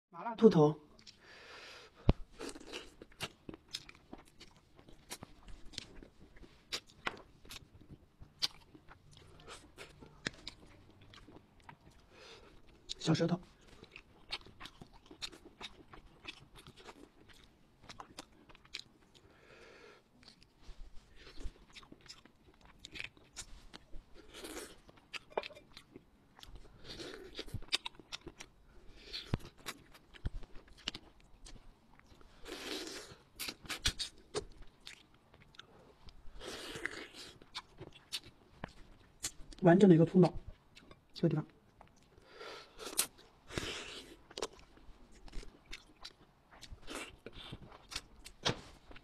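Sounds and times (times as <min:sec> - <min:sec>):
breathing: 0:01.2 - 0:02.2, 0:19.2 - 0:20.1, 0:42.2 - 0:42.8
close eating crunches and mouth sounds: 0:01.9 - 0:39.6, 0:40.2 - 0:49.0.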